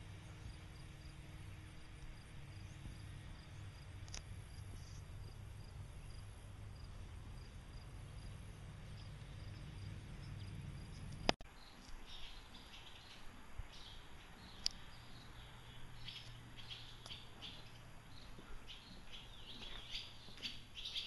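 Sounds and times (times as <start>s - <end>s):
low rumble: 0.0s - 11.4s
insects chirping: 0.0s - 21.0s.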